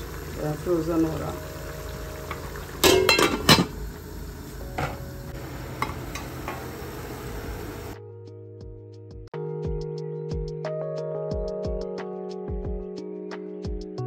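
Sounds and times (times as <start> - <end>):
meat sizzling: 0.0 - 8.0
metal pot clanking: 2.1 - 3.8, 4.7 - 5.1, 5.8 - 6.8
background music: 7.8 - 14.0.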